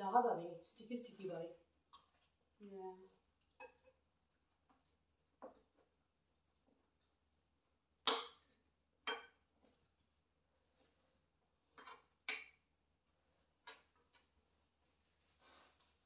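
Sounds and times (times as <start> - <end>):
cutlery clinking on plates: 9.1 - 9.4.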